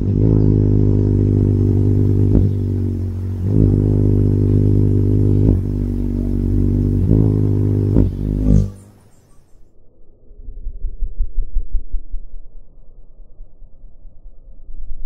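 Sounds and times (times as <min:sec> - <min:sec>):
hummingbird wings humming: 0:00.0 - 0:09.6.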